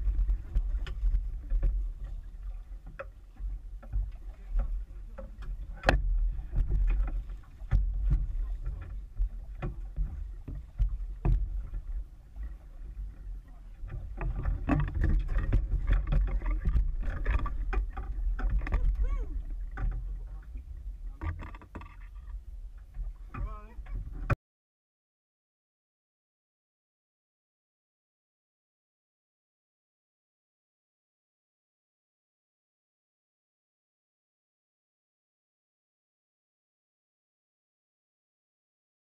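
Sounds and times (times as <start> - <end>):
constant low rumble: 0.0 - 24.4
muffled knocks on a boat: 0.0 - 24.4
water splashing: 0.0 - 24.4.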